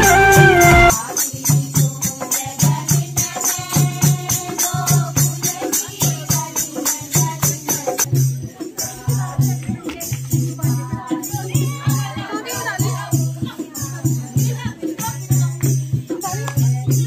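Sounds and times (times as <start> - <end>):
folk wind instrument melody: 0.0 - 1.0
dholak beating a rhythm: 0.0 - 17.0
jingling hand percussion: 0.0 - 17.0.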